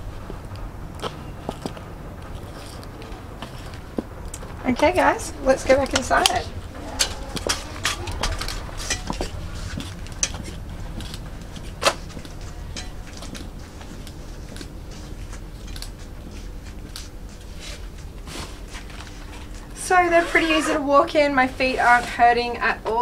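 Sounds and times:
high heel footsteps clicking: 0.2 - 6.4, 7.0 - 18.2.

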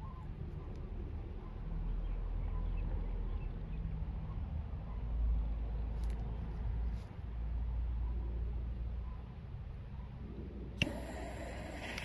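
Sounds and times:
faint bird chirps: 0.0 - 5.1.

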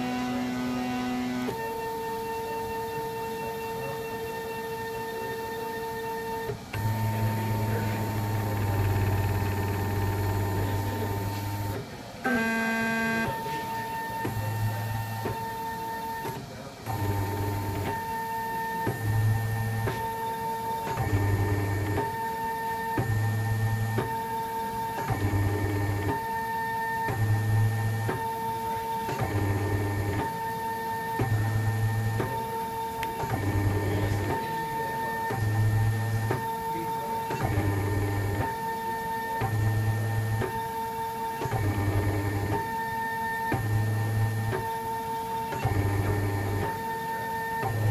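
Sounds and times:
stepper motors whining: 0.0 - 47.9.

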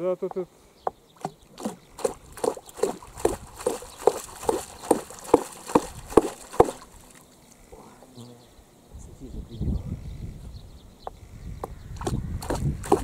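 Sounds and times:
hammer blows with splashes: 1.2 - 7.2.

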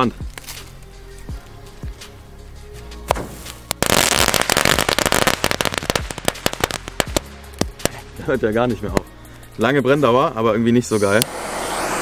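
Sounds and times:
firework crackling pops: 0.2 - 0.8, 3.0 - 8.2
firework fizzing hiss: 3.1 - 8.2, 10.8 - 12.0.

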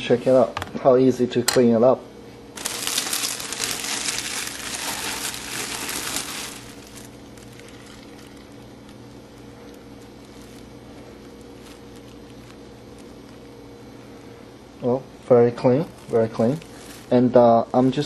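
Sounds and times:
steady low hum: 0.0 - 18.0
plastic bag crinkling: 2.6 - 13.6, 15.6 - 18.0.

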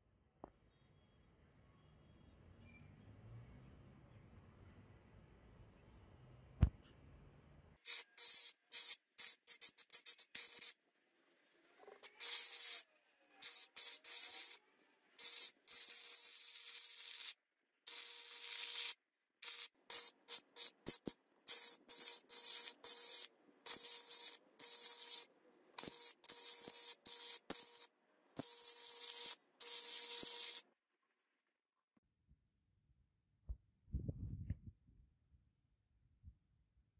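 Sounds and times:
welding arc crackling and hissing: 7.9 - 10.8, 12.0 - 12.8, 13.4 - 14.6, 15.2 - 30.6.

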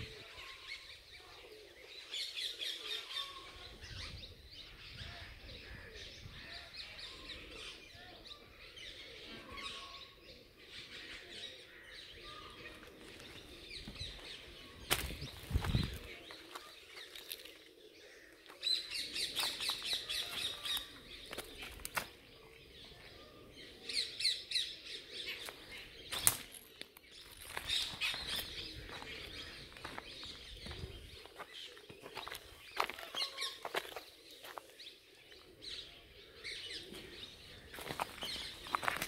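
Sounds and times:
birds chirping: 0.0 - 39.0.

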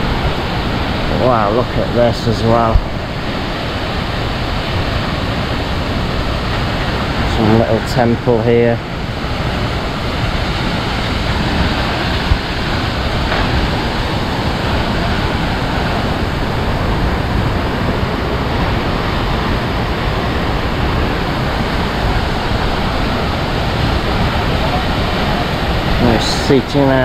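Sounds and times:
waterfall rushing: 0.0 - 27.0.

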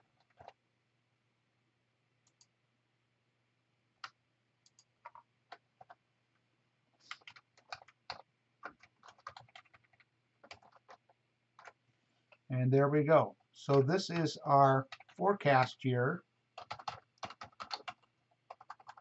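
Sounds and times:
keyboard and mouse clicks: 0.1 - 0.6, 2.2 - 2.5, 4.0 - 6.0, 7.0 - 12.5, 13.6 - 15.2, 16.6 - 19.0.

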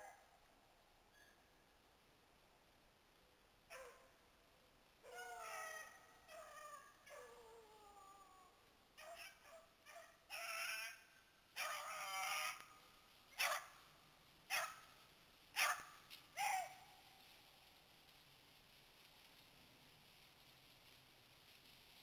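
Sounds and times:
beagles baying and yipping: 3.7 - 4.1, 5.0 - 7.6, 9.0 - 13.9, 14.5 - 17.3.

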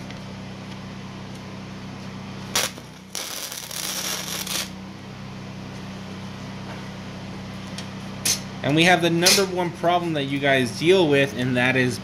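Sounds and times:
welder arc crackling: 2.5 - 4.8.

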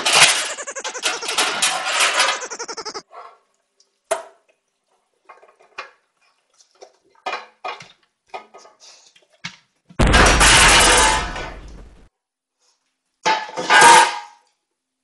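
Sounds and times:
loud crash: 10.0 - 12.1.

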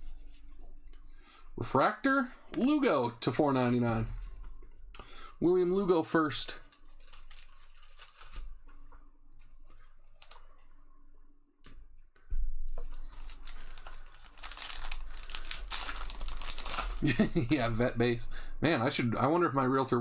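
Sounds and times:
wrapper tearing and crinkling: 6.6 - 8.6, 12.9 - 17.5.

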